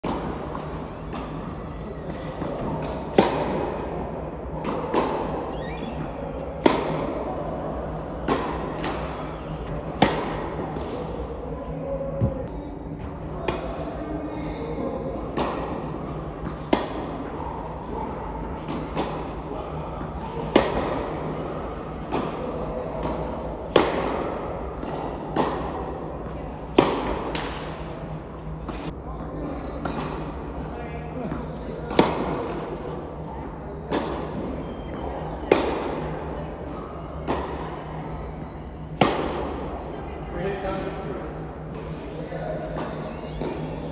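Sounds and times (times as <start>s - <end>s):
racket hitting tennis ball: 2.1s - 3.8s, 6.6s - 7.2s, 8.2s - 11.2s, 16.4s - 17.2s, 20.4s - 21.4s, 22.1s - 25.8s, 26.6s - 27.9s, 31.9s - 32.6s, 35.5s - 36.1s, 38.9s - 39.6s
shoe squeaks: 5.5s - 6.6s
tennis ball bouncing: 6.6s - 7.1s, 8.2s - 11.2s, 23.0s - 25.7s, 26.6s - 27.6s, 38.9s - 39.5s.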